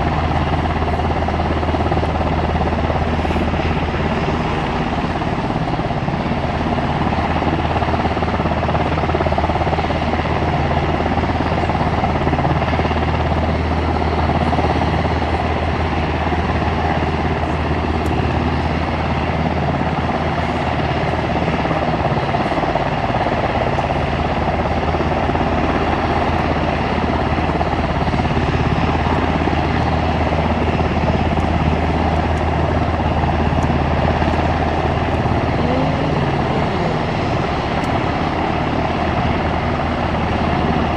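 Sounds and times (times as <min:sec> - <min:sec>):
aircraft engines running: 0:00.0 - 0:40.9.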